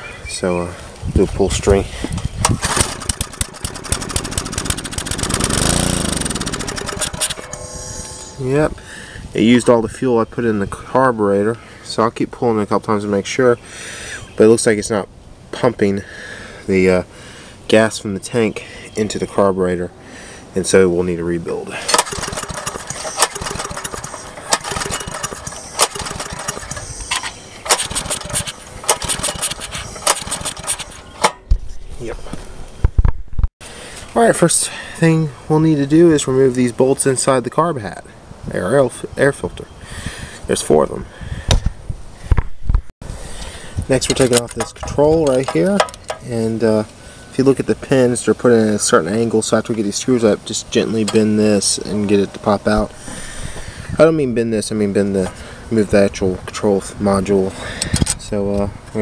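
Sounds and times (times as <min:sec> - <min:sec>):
engine pull-start: 0:02.4 - 0:07.7, 0:21.9 - 0:31.4
small engine running: 0:02.6 - 0:07.6, 0:21.9 - 0:26.9, 0:27.7 - 0:31.0.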